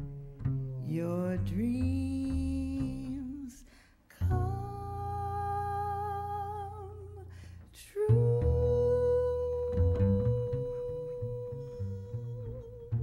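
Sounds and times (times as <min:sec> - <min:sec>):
double bass notes: 0:00.0 - 0:13.0.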